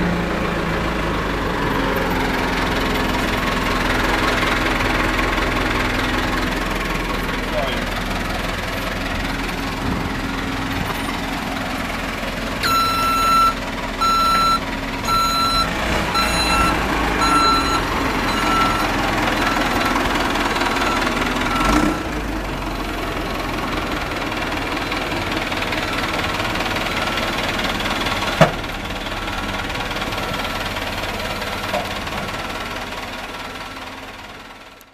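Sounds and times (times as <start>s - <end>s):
diesel engine running: 0.0s - 34.9s
reversing alarm beeping: 12.6s - 22.1s.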